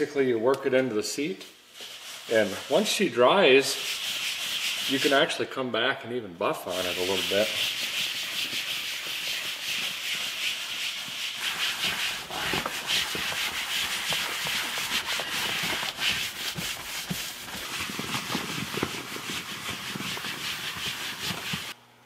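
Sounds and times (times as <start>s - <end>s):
rag rubbing upholstery: 3.7s - 5.2s, 6.7s - 21.8s.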